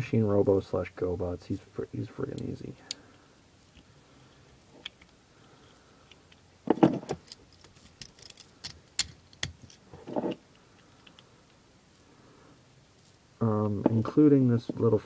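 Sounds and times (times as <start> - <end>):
toy figures bumping against hands: 6.1 - 10.4
toy figure parts clicking: 7.1 - 9.8.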